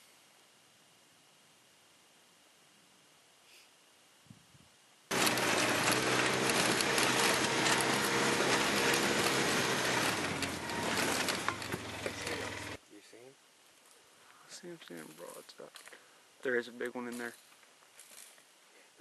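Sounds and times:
engine humming: 5.1s - 12.8s
vehicle rattling over rough ground: 5.1s - 12.8s.

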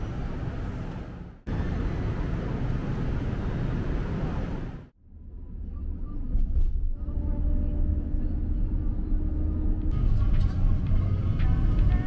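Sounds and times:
road traffic rumble: 0.0s - 5.0s, 7.4s - 12.0s.

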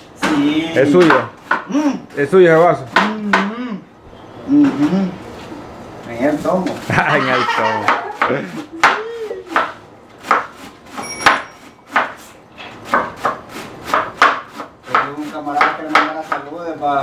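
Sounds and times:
knife chopping on wooden board: 0.2s - 1.8s, 2.8s - 3.6s, 7.7s - 16.6s.

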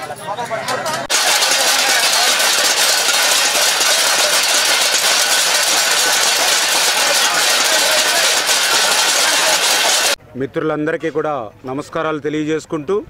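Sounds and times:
utensils banging metal plates: 0.7s - 10.2s.

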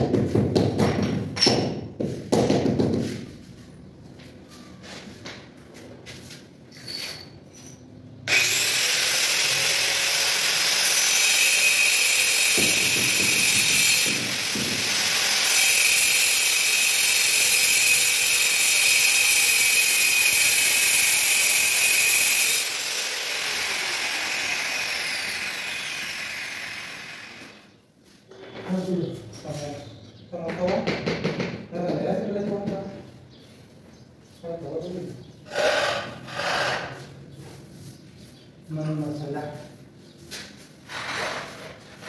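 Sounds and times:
power tool whining and grinding: 8.3s - 27.7s.

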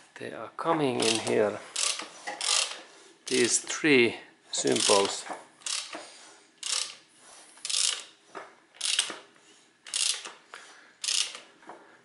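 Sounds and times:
ratchet wrench clicking: 1.0s - 3.6s, 4.7s - 6.0s, 6.6s - 7.0s, 7.6s - 8.1s, 8.8s - 9.2s, 9.8s - 10.3s, 11.0s - 11.4s.

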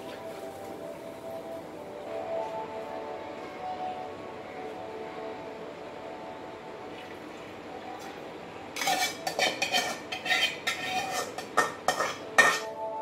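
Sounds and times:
pans and lids clattering: 8.8s - 12.7s.

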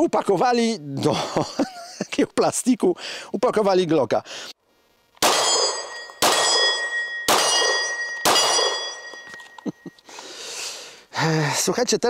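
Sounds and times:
gunshots: 5.2s - 9.1s
ringing metal clang: 5.2s - 10.0s.

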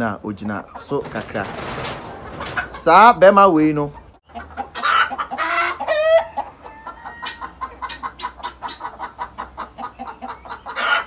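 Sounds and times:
chickens clucking: 0.0s - 11.0s
chicken squawks: 3.9s - 11.0s.

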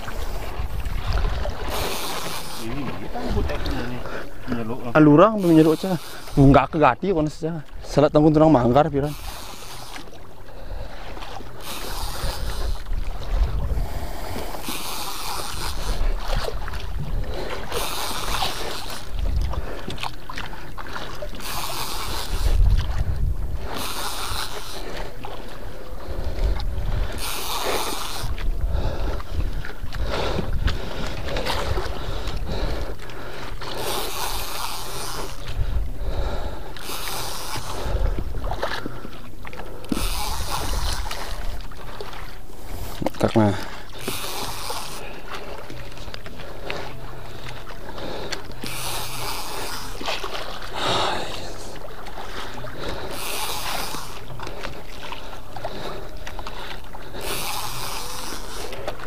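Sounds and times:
fishing reel whirring: 0.0s - 4.0s, 5.0s - 7.4s, 8.6s - 20.3s, 21.0s - 30.6s, 31.2s - 39.0s, 39.7s - 41.6s, 42.5s - 59.0s
wind buffeting microphone: 0.0s - 5.0s, 11.9s - 14.7s, 15.5s - 21.4s, 22.0s - 27.2s, 28.2s - 33.9s, 35.3s - 36.9s, 37.5s - 39.1s
water sloshing against boat: 0.0s - 59.0s.

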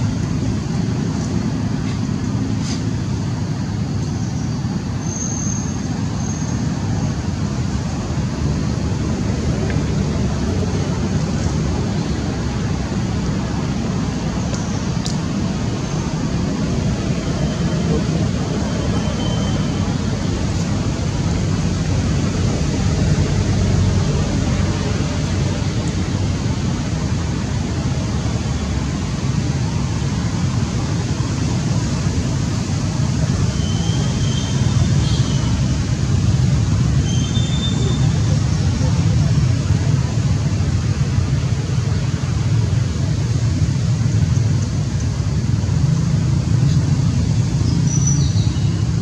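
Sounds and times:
road traffic rumble: 0.0s - 49.0s
hiss: 0.6s - 7.8s.

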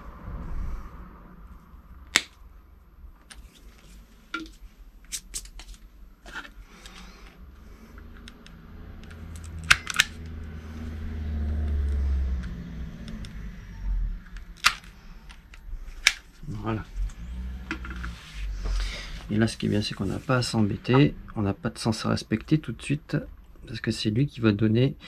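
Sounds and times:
low rumble: 0.0s - 3.2s, 10.2s - 22.1s.

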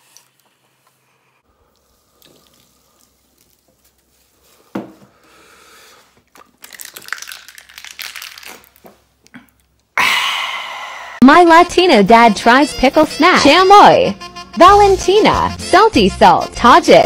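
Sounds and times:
plastic bottle crinkling: 1.7s - 5.2s, 6.1s - 9.9s.

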